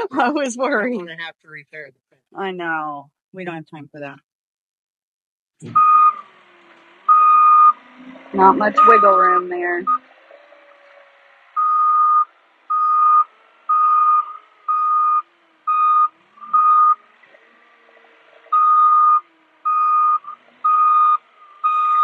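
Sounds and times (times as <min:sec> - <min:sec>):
backup alarm beeping: 0:05.6 - 0:06.3, 0:07.1 - 0:10.1, 0:11.6 - 0:17.1, 0:18.5 - 0:22.0.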